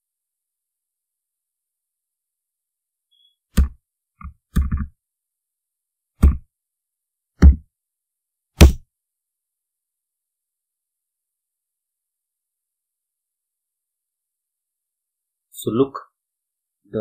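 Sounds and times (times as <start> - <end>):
keyboard keystrokes: 3.6 - 4.9.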